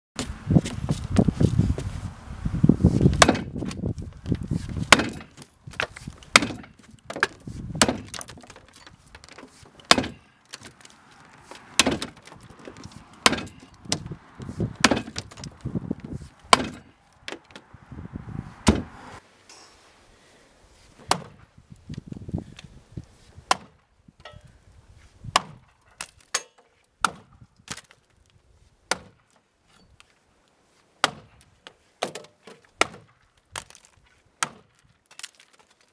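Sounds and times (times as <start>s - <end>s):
axe chopping wood: 2.9s - 17.6s, 18.6s - 19.2s, 21.0s - 21.4s, 23.4s - 24.5s, 25.2s - 28.0s, 28.8s - 29.4s, 31.0s - 35.6s.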